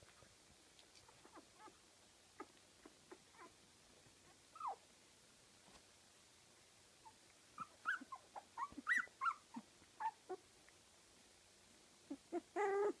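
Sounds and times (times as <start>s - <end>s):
puppies squeaking and whimpering: 4.6s - 4.8s, 7.6s - 10.4s, 12.1s - 13.0s.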